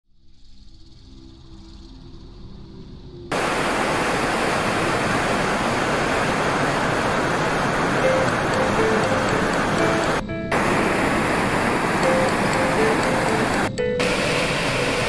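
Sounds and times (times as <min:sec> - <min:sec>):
waterfall rushing: 0:03.3 - 0:15.0.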